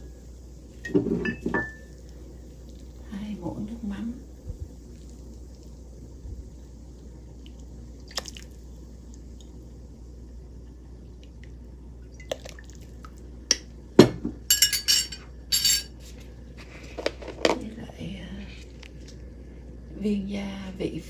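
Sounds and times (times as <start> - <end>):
spoon clinking on metal pot: 14.5 - 15.9.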